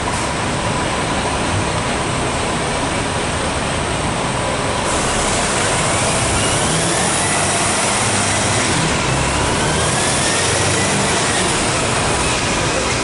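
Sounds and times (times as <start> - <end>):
diesel truck driving past: 0.0 - 13.0.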